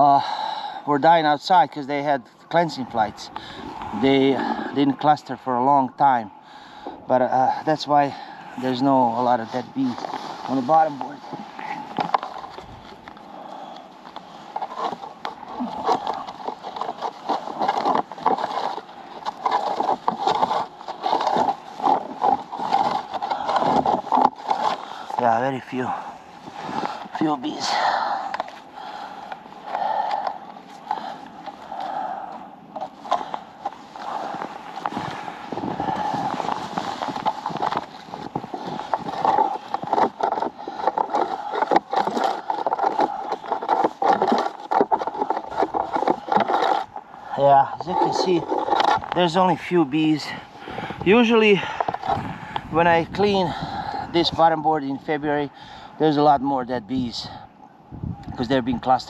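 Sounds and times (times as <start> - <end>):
metal rake scraping wood: 7.9 - 12.7, 14.2 - 29.0, 32.8 - 52.9.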